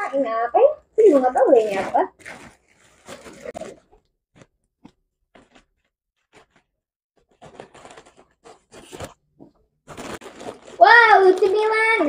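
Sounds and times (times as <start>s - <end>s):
plastic packaging crinkling and tearing: 1.0s - 4.5s, 5.3s - 9.2s, 9.9s - 12.0s.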